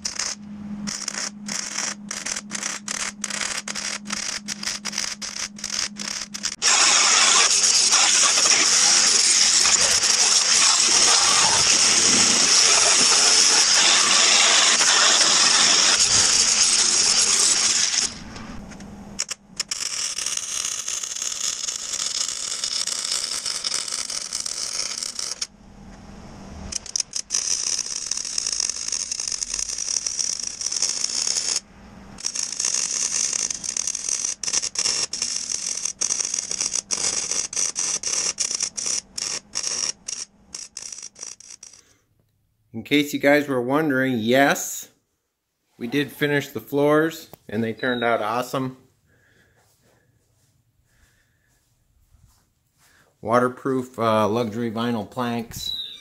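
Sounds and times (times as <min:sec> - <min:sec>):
angle grinder grinding steel: 0:00.0 - 0:18.3
arc welding crackling sizzle: 0:00.0 - 0:18.6, 0:19.2 - 0:25.5, 0:26.7 - 0:31.6, 0:32.2 - 0:41.8.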